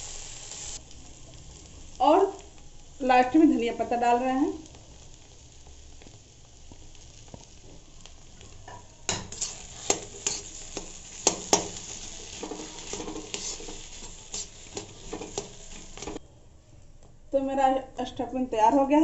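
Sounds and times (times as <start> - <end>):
faint frying sizzle: 0.0 - 16.2
spatula scraping metal pan: 9.1 - 16.2.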